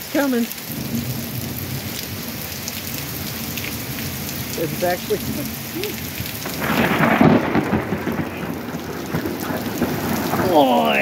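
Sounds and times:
steady rain: 0.0s - 11.0s
thunderclap rumbling: 0.7s - 11.0s.

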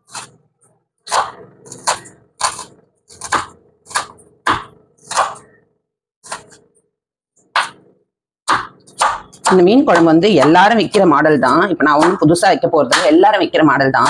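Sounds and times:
knife chopping on cutting board: 0.1s - 0.4s, 1.1s - 5.5s, 6.2s - 6.7s, 7.5s - 11.0s, 11.9s - 12.3s.

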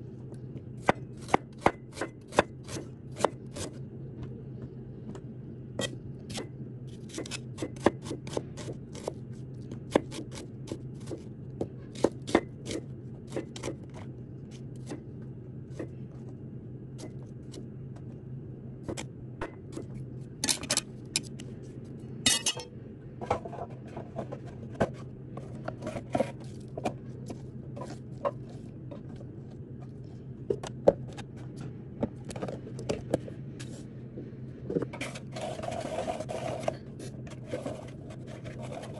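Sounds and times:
low hum: 2.8s - 7.2s, 12.6s - 38.9s
cleaver scraping board: 34.9s - 38.9s.

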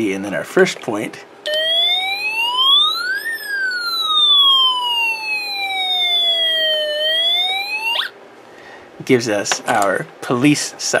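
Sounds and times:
electronic siren tone from speaker: 1.5s - 8.2s.

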